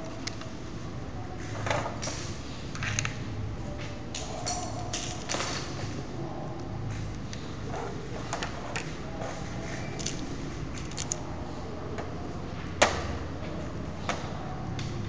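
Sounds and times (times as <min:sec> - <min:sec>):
steady low hum: 0:00.0 - 0:15.0
plastic parts clicking: 0:10.0 - 0:10.2, 0:10.8 - 0:11.2.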